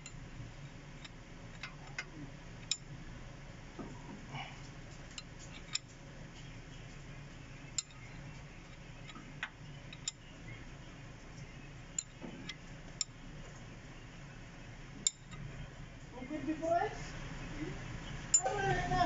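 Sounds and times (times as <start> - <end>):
low steady hum: 0.0 - 19.0
hand tools clicking on metal: 7.8 - 8.1, 9.0 - 10.2.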